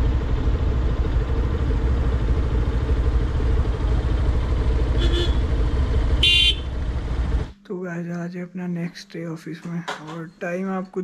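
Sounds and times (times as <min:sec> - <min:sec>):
motorcycle engine running: 0:00.0 - 0:07.6
vehicle horn beep: 0:05.0 - 0:05.5, 0:06.2 - 0:06.8.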